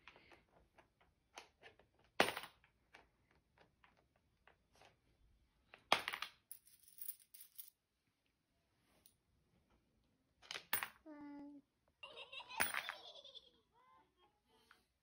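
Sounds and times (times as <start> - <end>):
coins clinking: 6.5 - 7.8, 12.6 - 13.0.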